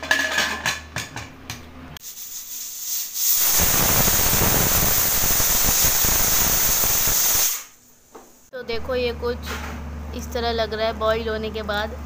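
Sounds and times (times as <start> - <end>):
pressure cooker hissing steam: 2.0 - 7.8.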